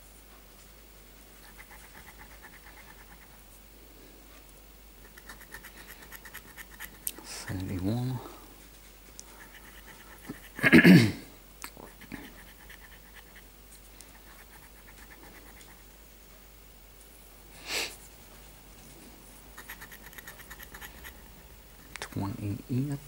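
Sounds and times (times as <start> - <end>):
coin scratching scratch card: 1.4 - 3.4, 5.1 - 7.0, 9.4 - 10.7, 11.8 - 13.4, 14.2 - 15.8, 19.6 - 21.3
breath puff: 17.6 - 18.0.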